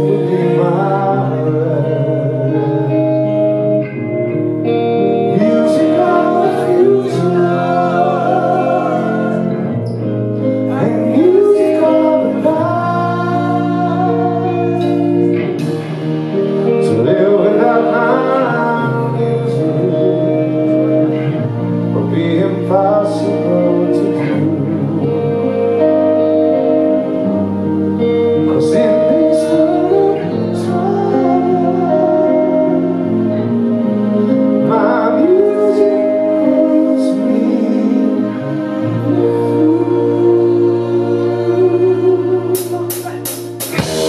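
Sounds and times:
man singing lead: 0.0 - 4.1, 5.0 - 44.0
electric guitar: 0.0 - 44.0
keyboards: 0.0 - 44.0
drums: 14.9 - 18.3, 42.6 - 44.0.

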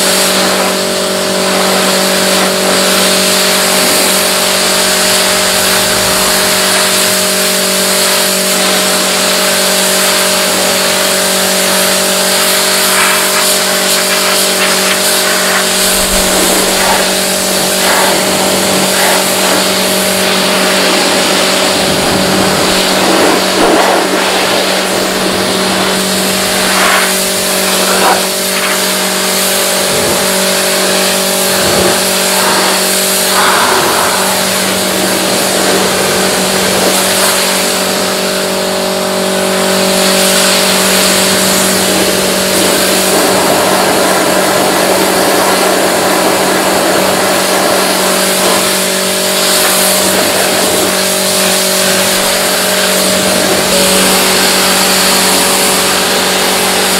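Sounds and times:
cleaning machine motor hum: 0.0 - 56.9
loud even hiss: 1.5 - 38.5.

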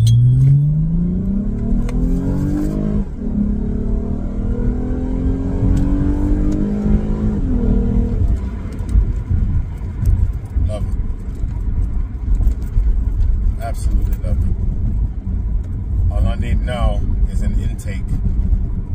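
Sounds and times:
car engine accelerating hard: 0.0 - 15.0.

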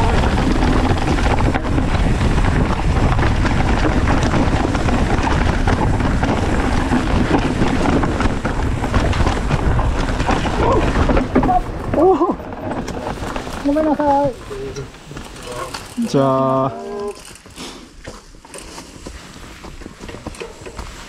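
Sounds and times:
wind buffeting microphone: 0.0 - 14.9
bike rattling and knocking: 0.0 - 21.0
bike tyres rolling on dirt: 0.0 - 21.0.

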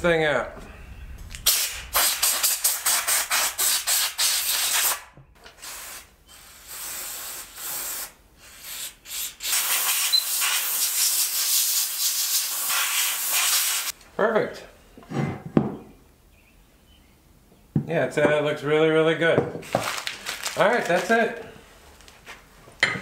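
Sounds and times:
compressed air hissing: 1.3 - 14.0.

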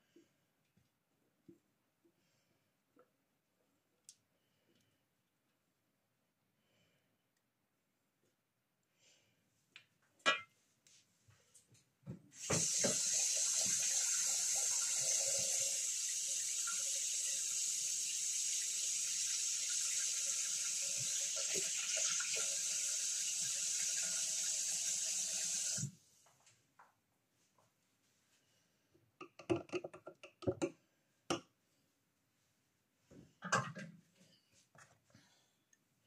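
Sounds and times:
water running from a tap: 12.4 - 25.9.

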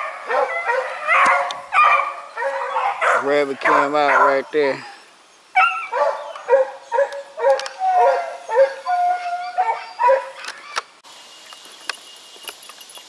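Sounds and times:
hounds baying: 0.0 - 5.0, 5.6 - 10.8.

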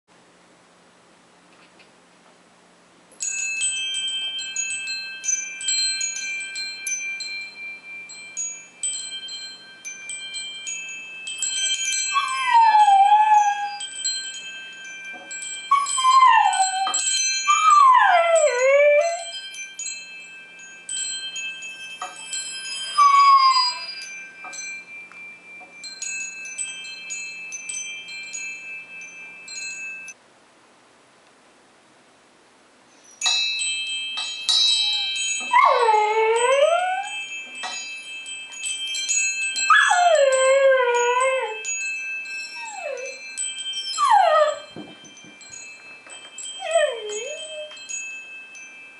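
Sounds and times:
wind chimes ringing: 3.1 - 30.2, 32.8 - 48.9
dog howling: 12.1 - 13.8, 15.7 - 19.3, 23.0 - 23.9, 35.0 - 37.2, 39.7 - 41.6, 46.6 - 47.7.

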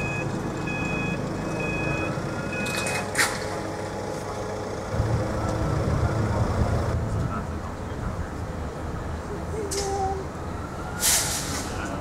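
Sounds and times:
level crossing alarm beeps: 0.0 - 2.9
electric train rumble: 3.2 - 8.2.

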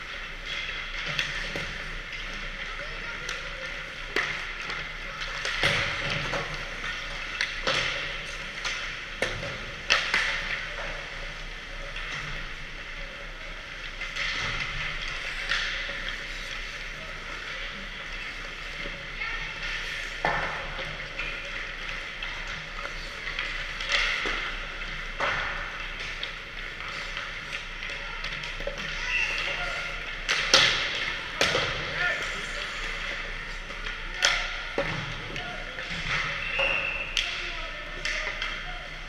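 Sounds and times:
sticks hitting pucks: 0.0 - 39.0.

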